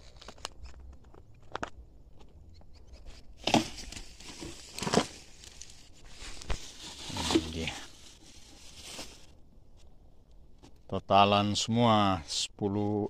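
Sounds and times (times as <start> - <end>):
rustling and scuffing handling noise: 3.4 - 9.9.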